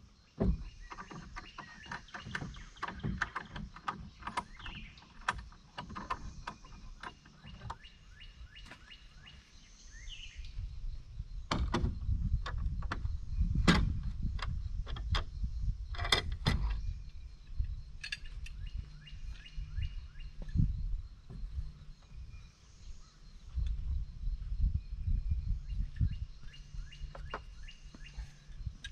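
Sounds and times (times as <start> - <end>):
small birds chirping: 0.0 - 28.9
low rumbling noise: 9.8 - 28.9.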